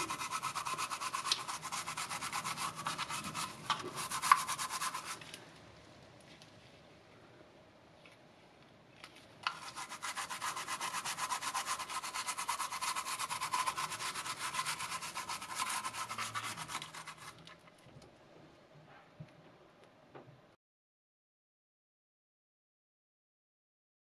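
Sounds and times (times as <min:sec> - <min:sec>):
toothbrush scrubbing plastic: 0:00.0 - 0:05.4, 0:09.4 - 0:17.7.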